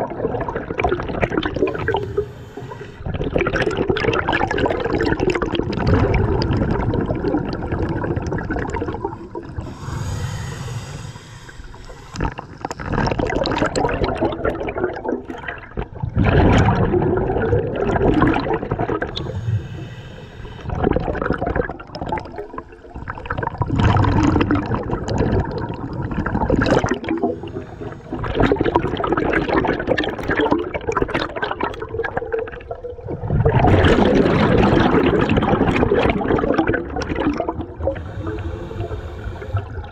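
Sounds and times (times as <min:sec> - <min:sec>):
exhaled bubbles rushing underwater: 0:00.0 - 0:39.9
regulator inhale hiss: 0:01.6 - 0:03.1, 0:09.6 - 0:12.8, 0:19.1 - 0:20.8, 0:27.2 - 0:28.6, 0:37.9 - 0:39.9.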